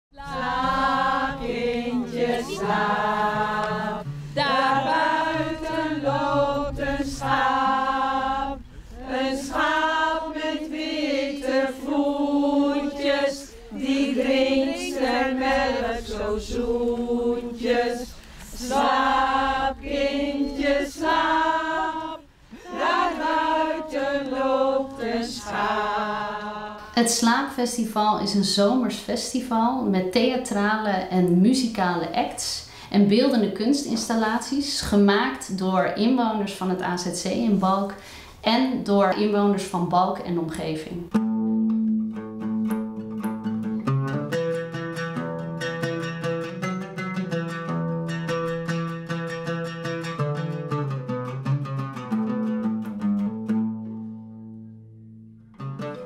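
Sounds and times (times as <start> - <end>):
voices singing unaccompanied: 0.1 - 27.2.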